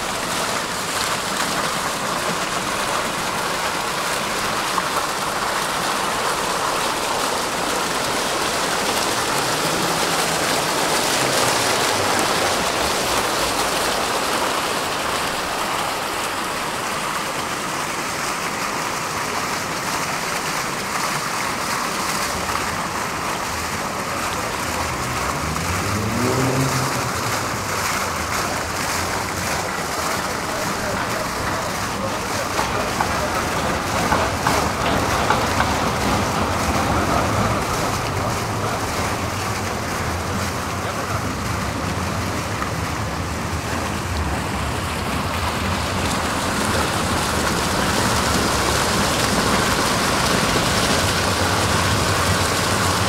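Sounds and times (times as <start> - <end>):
fountain water splashing: 0.0 - 53.0
vehicle pulling away whine: 24.3 - 29.6.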